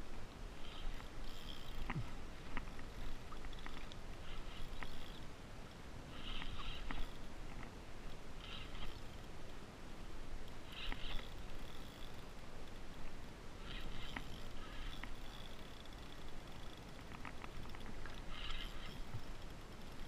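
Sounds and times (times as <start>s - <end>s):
wind: 0.0s - 20.0s
light clicks: 13.7s - 20.0s.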